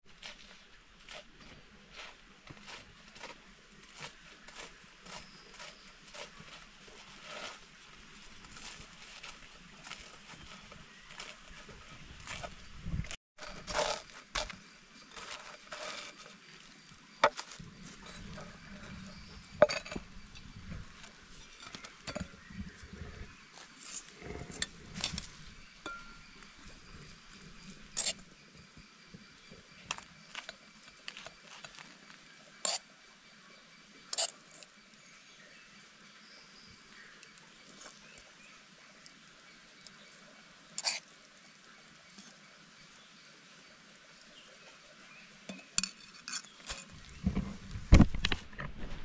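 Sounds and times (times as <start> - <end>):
fork scraping a metal pan: 23.9 - 28.3, 32.6 - 32.8, 34.1 - 34.6, 40.8 - 41.0, 45.5 - 47.5.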